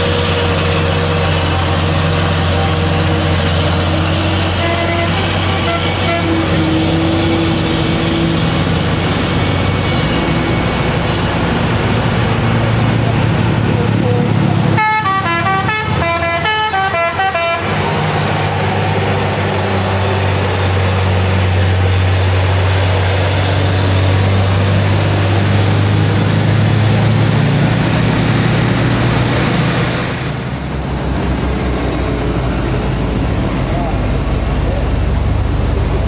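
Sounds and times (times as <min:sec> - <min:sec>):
diesel truck engine under load: 0:00.0 - 0:36.0
multi-tone air horn: 0:04.1 - 0:07.6, 0:14.6 - 0:18.0.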